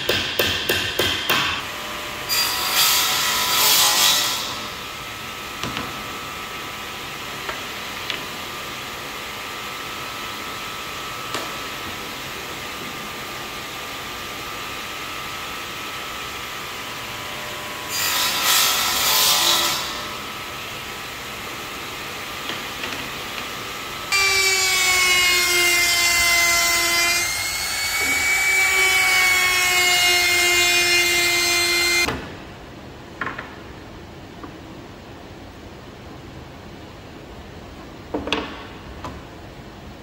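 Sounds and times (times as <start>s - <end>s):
radial arm saw cutting wood: 24.1s - 32.1s.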